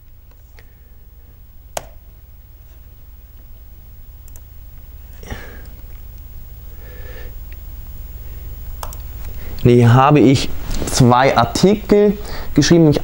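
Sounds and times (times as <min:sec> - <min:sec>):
low steady hum: 0:00.0 - 0:13.0
computer mouse clicks: 0:04.2 - 0:04.4, 0:08.8 - 0:09.0.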